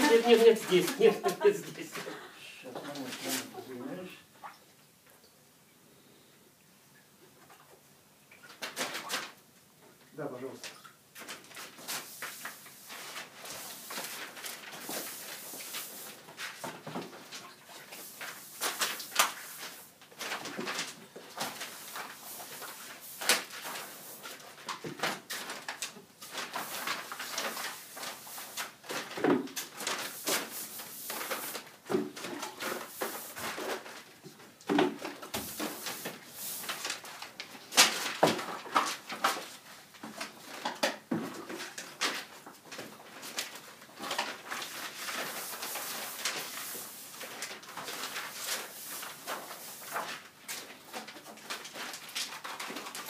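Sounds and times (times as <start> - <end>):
paintbrush swishing on paper: 44.7 - 50.1.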